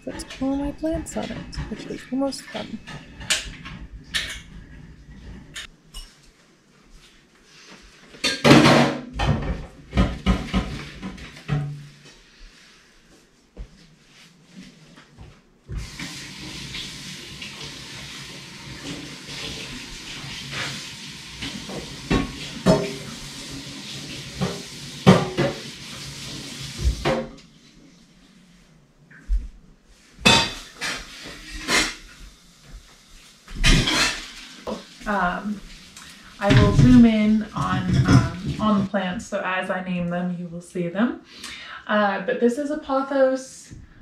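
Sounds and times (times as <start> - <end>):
dishes and pots clattering: 0.0 - 6.2, 8.1 - 12.0, 21.7 - 23.1, 24.4 - 25.7, 30.2 - 32.2, 33.5 - 34.6
dishes clinking: 30.2 - 32.0.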